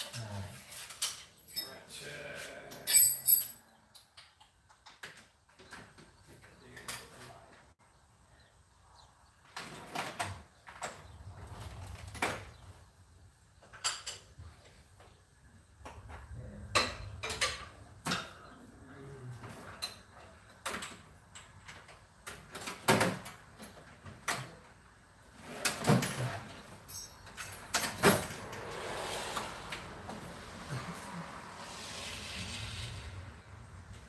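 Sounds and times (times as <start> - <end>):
hand tools clinking: 2.8 - 3.6.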